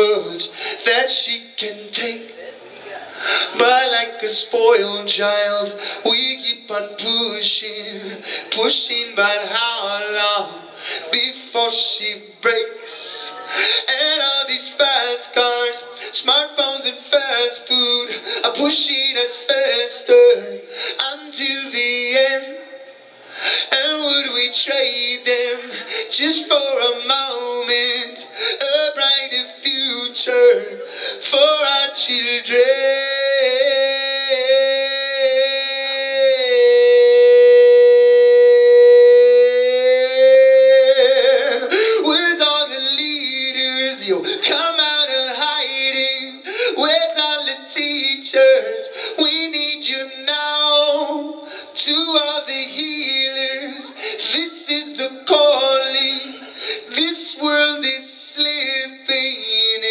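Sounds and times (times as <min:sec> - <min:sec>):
man singing into microphone: 0:00.0 - 0:02.6, 0:03.2 - 0:59.9.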